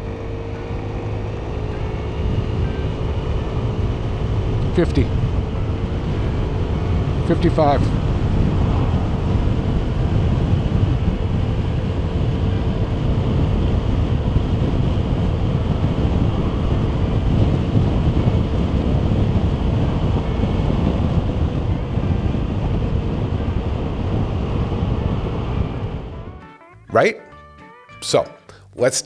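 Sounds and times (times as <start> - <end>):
wind and road noise inside helmet: 0.0 - 26.4.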